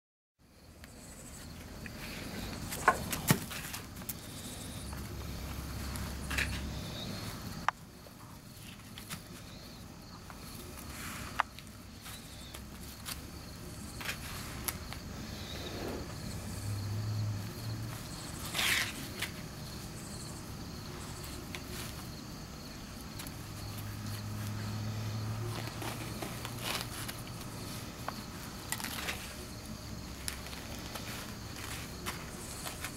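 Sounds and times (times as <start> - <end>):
dog tearing corn husks: 25.4 - 29.5.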